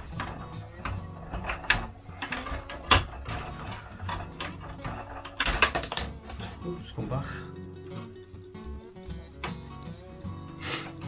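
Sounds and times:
plastic toy parts clicking: 0.0s - 6.4s
plastic rattles: 0.0s - 6.8s.

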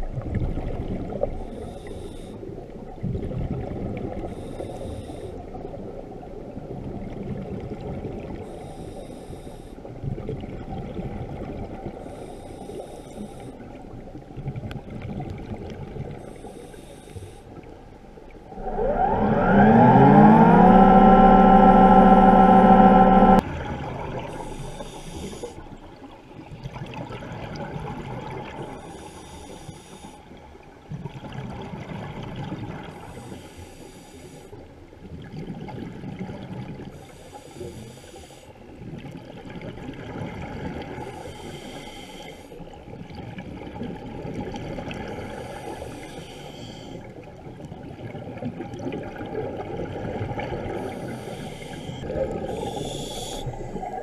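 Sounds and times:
exhaled bubbles gurgling: 0.0s - 8.6s, 9.9s - 12.2s, 18.4s - 29.2s, 38.7s - 54.0s
regulator inhalation hiss: 24.3s - 25.6s, 37.0s - 38.6s, 41.1s - 42.6s, 45.3s - 47.0s, 50.8s - 54.0s.

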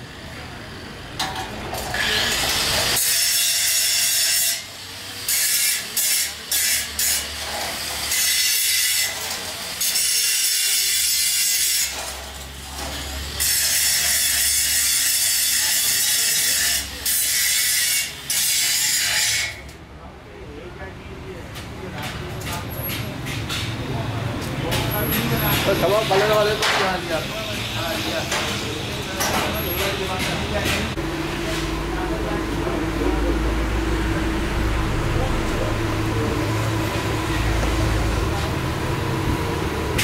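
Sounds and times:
angle grinder grinding metal: 1.8s - 19.7s.

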